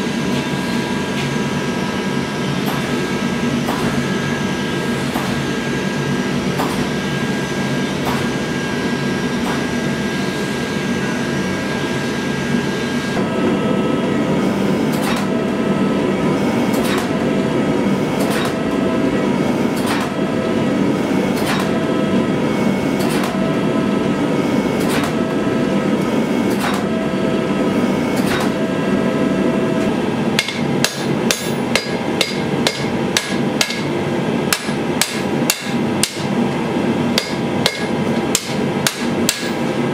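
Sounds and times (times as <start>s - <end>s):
gas forge rushing: 0.0s - 39.9s
hammer blows on anvil: 30.4s - 33.9s, 37.1s - 39.6s.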